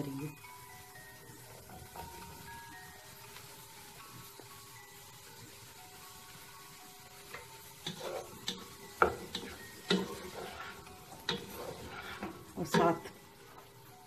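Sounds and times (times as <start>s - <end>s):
wooden spatula stirring vegetables: 0.0s - 14.0s
spatula scraping and knocking pan: 7.2s - 13.8s.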